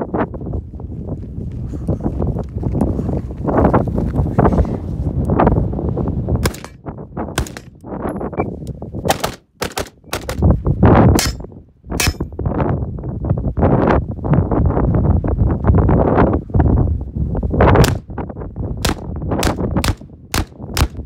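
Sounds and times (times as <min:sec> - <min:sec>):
wind buffeting microphone: 0:00.0 - 0:21.0
pistol gunshots: 0:06.4 - 0:06.8, 0:07.4 - 0:07.8, 0:09.1 - 0:10.5, 0:18.8 - 0:21.0.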